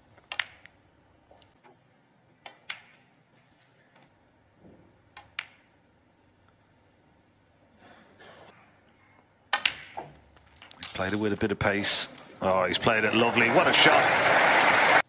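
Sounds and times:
snooker balls clicking: 0:00.2 - 0:00.8, 0:02.4 - 0:03.1, 0:05.1 - 0:05.8, 0:09.5 - 0:12.4.

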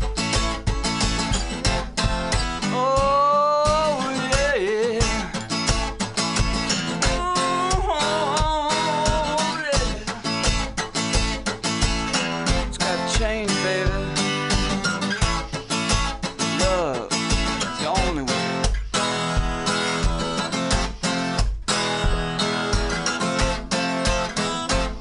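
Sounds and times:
acoustic guitar strumming: 0:00.0 - 0:25.0
person singing long notes: 0:02.6 - 0:05.4, 0:07.0 - 0:10.4.

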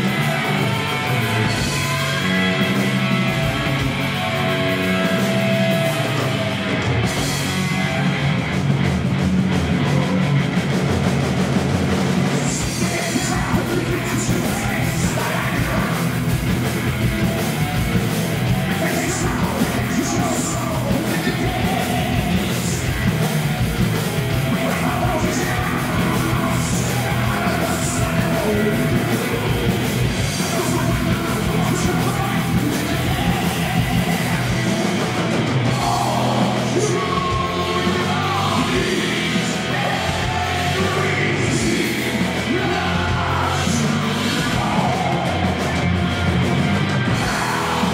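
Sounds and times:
person singing and yelling: 0:00.0 - 0:08.3, 0:12.2 - 0:46.0, 0:47.0 - 0:47.9
bass guitar: 0:00.0 - 0:47.9
distorted electric guitar: 0:00.0 - 0:47.9
drums: 0:00.0 - 0:47.9.

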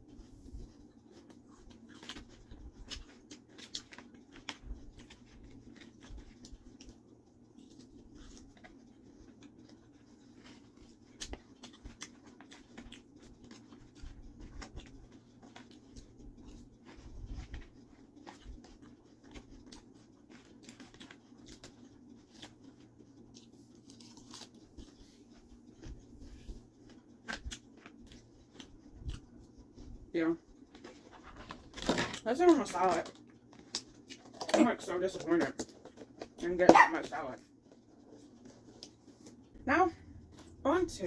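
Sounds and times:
low steady hum: 0:00.0 - 0:41.0
chewing crisp salad: 0:18.2 - 0:24.9, 0:27.3 - 0:29.2.

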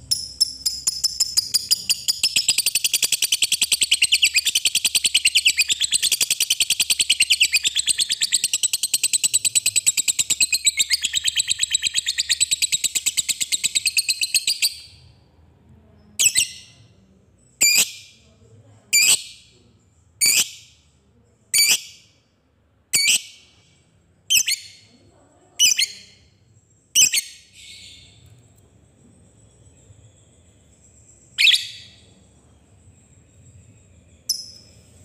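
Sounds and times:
bird chattering trill: 0:00.0 - 0:14.9, 0:31.3 - 0:32.1.

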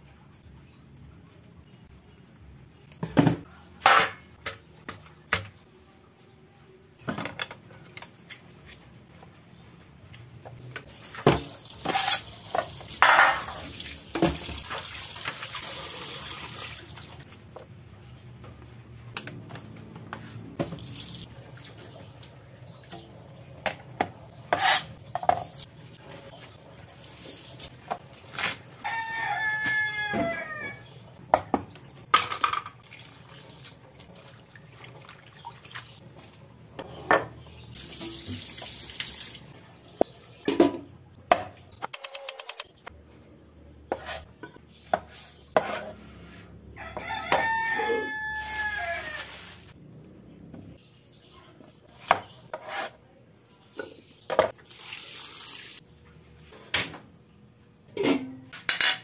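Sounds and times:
dishes clanking in steel sink: 0:11.2 - 0:14.8, 0:57.9 - 0:59.0
rooster crowing: 0:28.8 - 0:30.8, 0:46.7 - 0:49.5.

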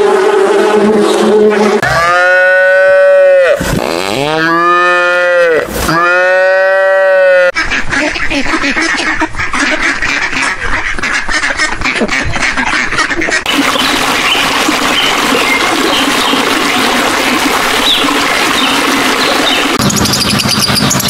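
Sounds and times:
ducks quacking: 0:07.4 - 0:19.8.

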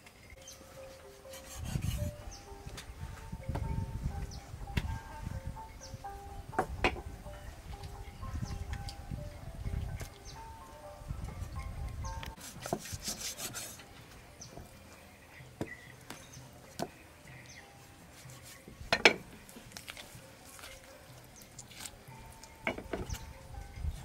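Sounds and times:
cleaver scraping on wooden block: 0:01.3 - 0:02.2, 0:12.4 - 0:13.8.

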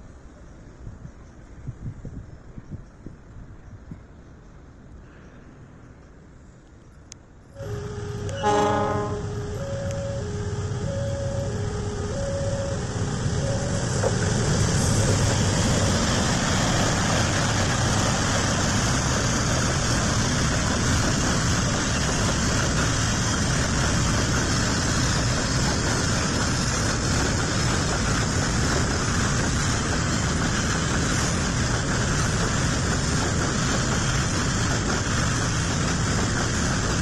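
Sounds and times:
diesel locomotive passing: 0:07.4 - 0:37.0.

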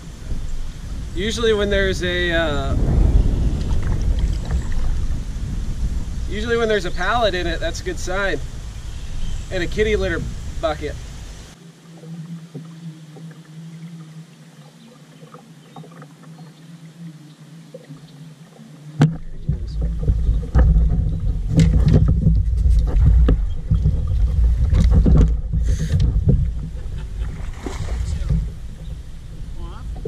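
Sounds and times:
rumbling handling noise: 0:00.0 - 0:11.6, 0:19.0 - 0:30.0.

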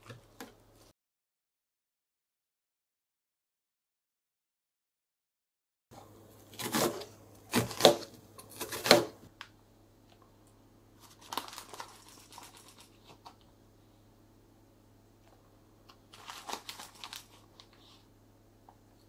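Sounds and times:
knife slicing onion on board: 0:06.5 - 0:09.2.

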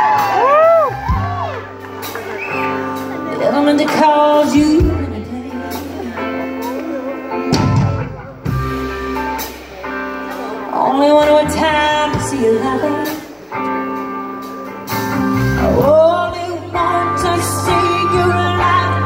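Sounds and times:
woman singing a ballad: 0:03.3 - 0:06.4, 0:10.6 - 0:13.4, 0:15.6 - 0:19.0.

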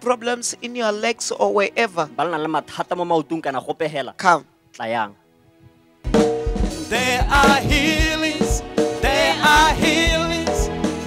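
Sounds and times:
drum kit bass-drum beat: 0:06.1 - 0:11.0
person singing worship music: 0:06.8 - 0:11.0.

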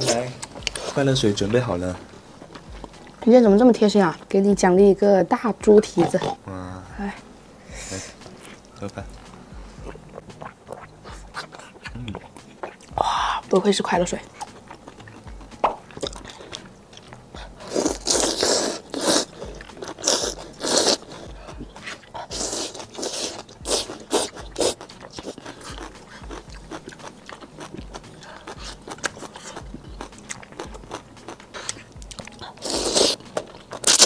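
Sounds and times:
chewing: 0:00.0 - 0:01.5, 0:02.3 - 0:03.3, 0:09.8 - 0:34.0
noodle slurping: 0:09.9 - 0:12.9, 0:17.5 - 0:29.6, 0:31.5 - 0:34.0
crunching bites: 0:22.8 - 0:34.0.

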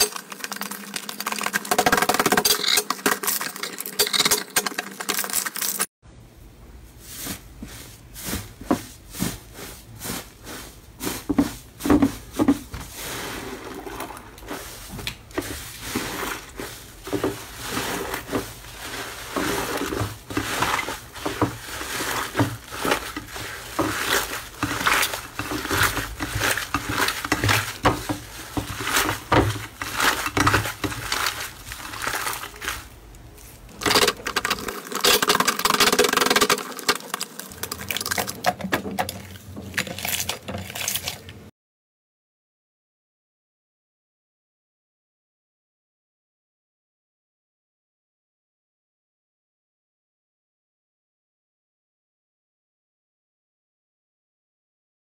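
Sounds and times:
slime crackling and squelching: 0:00.0 - 0:05.9, 0:12.9 - 0:41.4.

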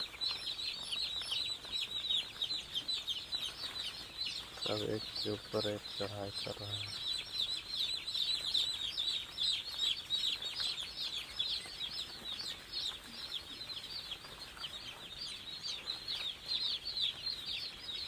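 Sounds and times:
chicks peeping: 0:00.0 - 0:18.0.

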